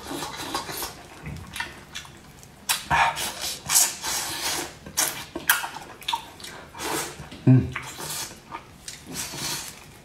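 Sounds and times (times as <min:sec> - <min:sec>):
wet eating and slurping: 0:00.0 - 0:10.0.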